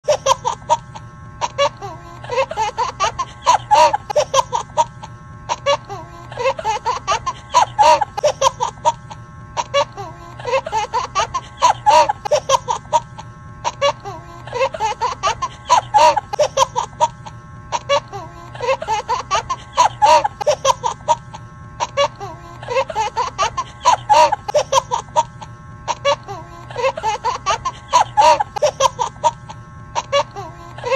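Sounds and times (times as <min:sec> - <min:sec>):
canned giggling laughter: 0:00.0 - 0:30.9.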